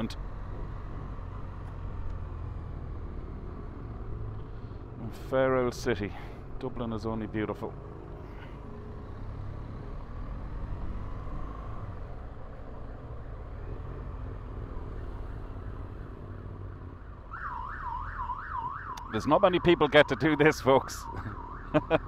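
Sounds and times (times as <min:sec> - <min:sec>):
police siren wailing: 0:16.8 - 0:22.0.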